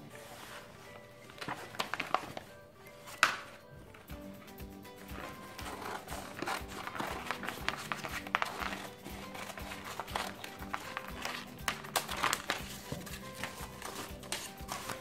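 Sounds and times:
background music: 0.0s - 15.0s
sheet clicking and rustling: 0.0s - 15.0s
scissors snipping plastic sheet: 5.0s - 15.0s.

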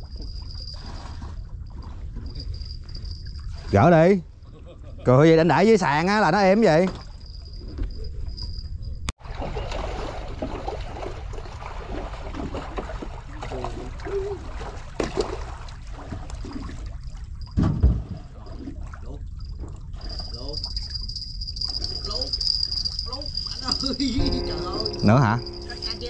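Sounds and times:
water trickling and sloshing: 0.0s - 5.1s, 5.8s - 26.0s
thump: 17.6s - 18.2s.

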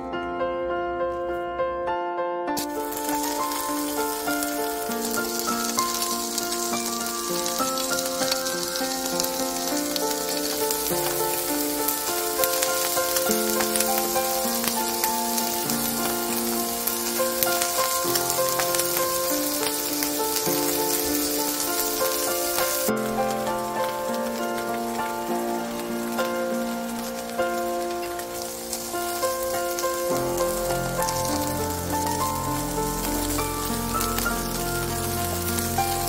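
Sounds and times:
fish sizzling in a frying pan: 2.6s - 36.0s.

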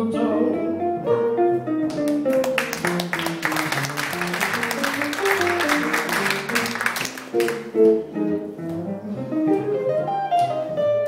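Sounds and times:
jazz guitar single-note line: 0.0s - 3.0s, 7.6s - 11.0s
audience applause: 2.0s - 7.8s.

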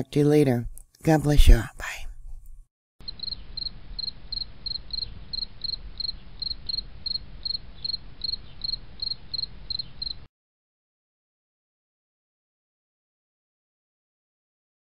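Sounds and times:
cricket chirping: 3.0s - 10.3s.

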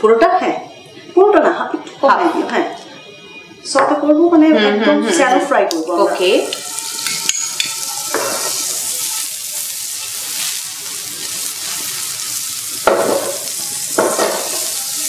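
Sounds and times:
fish sizzling in a pan: 6.0s - 15.0s.

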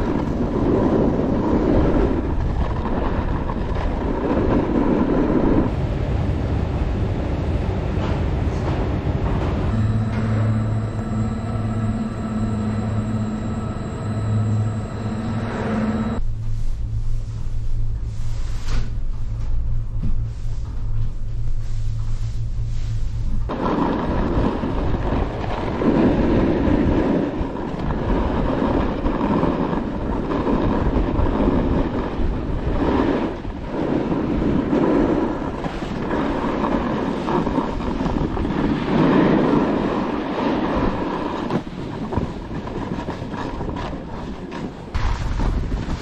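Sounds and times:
skis scraping over snow: 0.0s - 5.7s, 23.4s - 46.0s
wind rushing over microphone: 0.0s - 46.0s.

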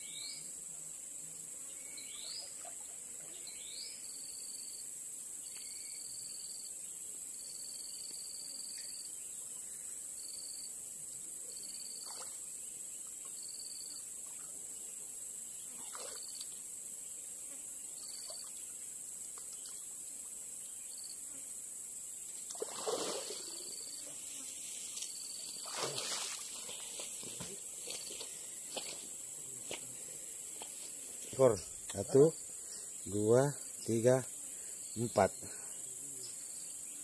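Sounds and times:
short insect chirps: 0.0s - 0.5s, 1.6s - 10.8s, 11.4s - 14.6s, 15.3s - 37.0s
high insect drone: 0.0s - 37.0s
water splashing from wading: 15.8s - 16.2s, 22.5s - 23.7s, 25.6s - 27.4s.

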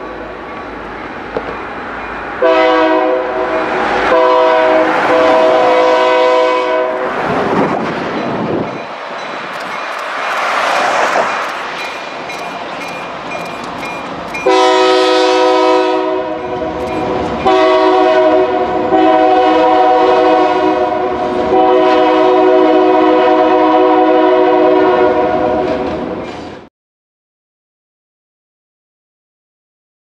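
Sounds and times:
passing train noise: 0.0s - 26.7s
locomotive air horn blasts: 2.4s - 7.2s, 14.4s - 25.6s.

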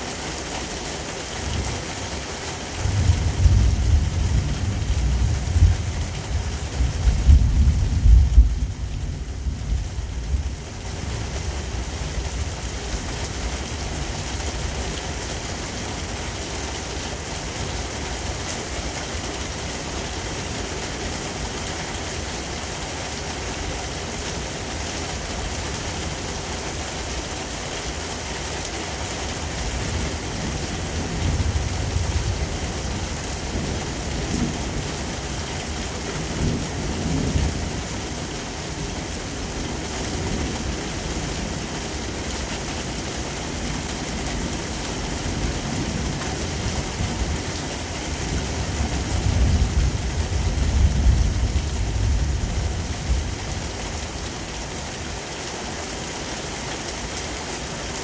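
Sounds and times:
heavy rain falling: 0.0s - 58.0s
low thunder rumbling: 2.8s - 10.5s, 48.3s - 53.4s.

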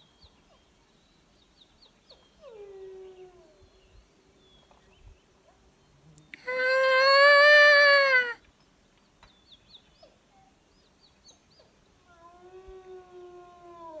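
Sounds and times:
distant wolf whine: 6.4s - 8.4s
faint high yips: 6.4s - 8.4s
loud close wolf howl: 6.4s - 8.4s.

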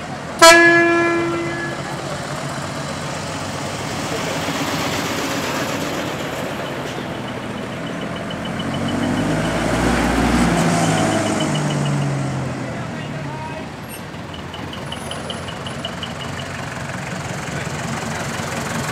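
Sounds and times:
truck diesel engines rumbling: 0.0s - 18.9s
rapid high beeping: 6.1s - 12.2s.

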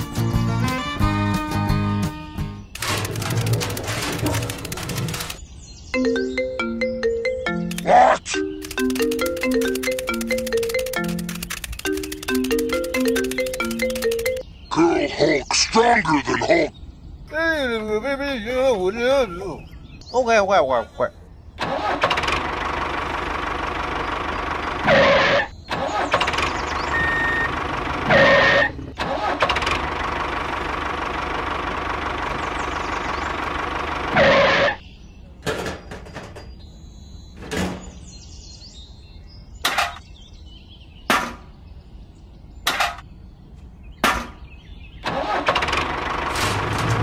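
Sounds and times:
tractor engine running: 2.6s - 5.5s, 7.1s - 14.4s, 21.6s - 34.7s, 45.0s - 47.0s.

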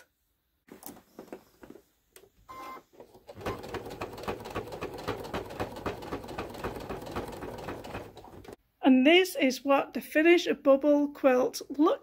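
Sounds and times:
sewing machine stitching: 2.6s - 8.6s.

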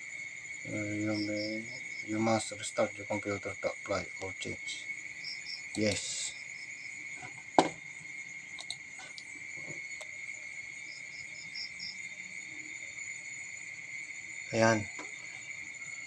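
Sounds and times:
insect trilling: 0.0s - 16.0s
faint chirps: 0.6s - 7.0s, 14.1s - 16.0s.

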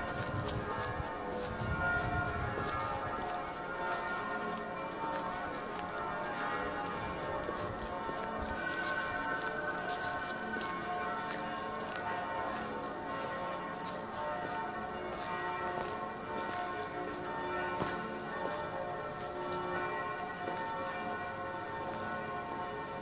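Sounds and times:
church bells ringing: 0.0s - 23.0s.

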